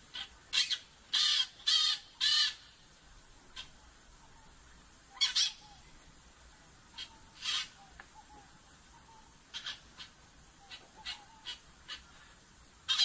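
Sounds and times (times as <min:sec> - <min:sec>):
parakeet screeching calls: 0:00.1 - 0:02.6, 0:05.2 - 0:05.7, 0:07.0 - 0:07.8, 0:09.5 - 0:12.1.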